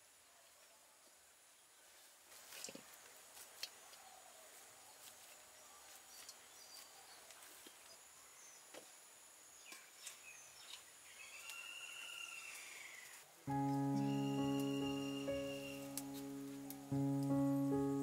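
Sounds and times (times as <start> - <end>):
faint rural outdoor ambience: 0.0 - 18.0
whistled bird calls: 13.9 - 16.0.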